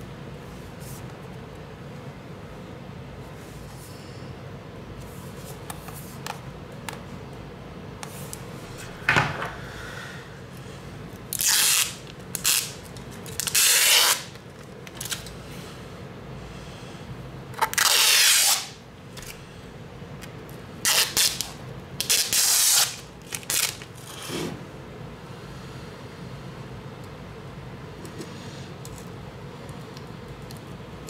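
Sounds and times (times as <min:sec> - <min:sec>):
low steady hum: 0:00.0 - 0:18.1, 0:18.7 - 0:22.3.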